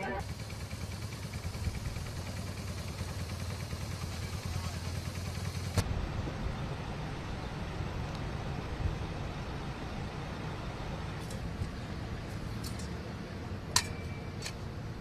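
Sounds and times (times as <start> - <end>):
road traffic rumble: 0.0 - 15.0.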